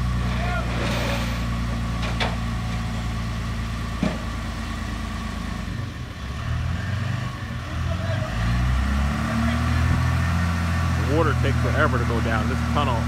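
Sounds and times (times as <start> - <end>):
truck engine idling: 0.0 - 8.8.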